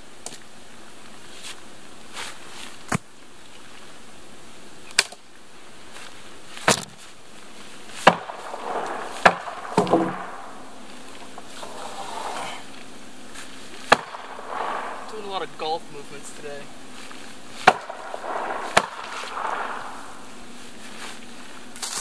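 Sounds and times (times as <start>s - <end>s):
blade chopping wet wood: 8.0s - 10.6s, 13.8s - 15.1s, 17.6s - 20.0s
wood creaking: 8.0s - 13.0s, 13.6s - 20.3s.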